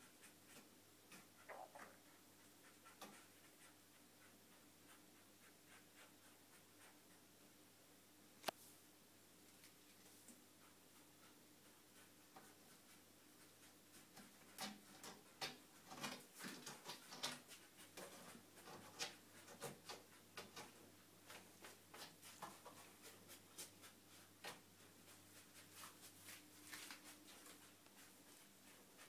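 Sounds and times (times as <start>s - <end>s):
cat claws scratching tile and door: 13.6s - 24.6s.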